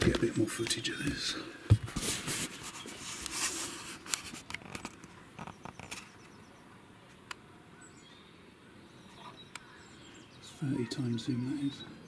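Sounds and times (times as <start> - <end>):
camera handling clicks and rustles: 3.2 - 6.2.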